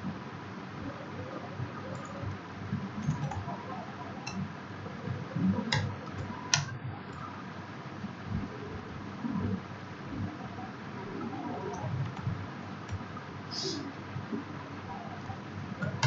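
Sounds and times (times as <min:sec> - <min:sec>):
computer keyboard typing: 0:01.9 - 0:02.4, 0:03.0 - 0:03.6, 0:05.6 - 0:07.3, 0:11.7 - 0:13.1.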